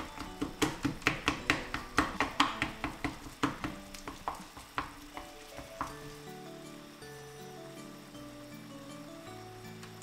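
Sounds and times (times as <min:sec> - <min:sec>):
spatula mashing squash in bowl: 0:00.0 - 0:06.0.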